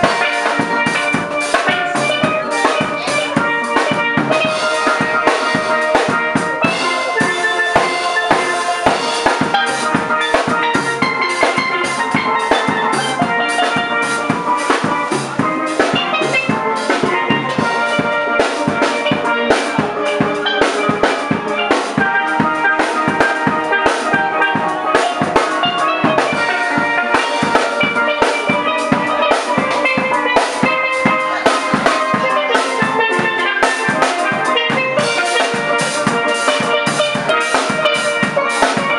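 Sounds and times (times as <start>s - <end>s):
drum kit beat: 0.0s - 38.9s
steel pan music: 0.0s - 38.9s.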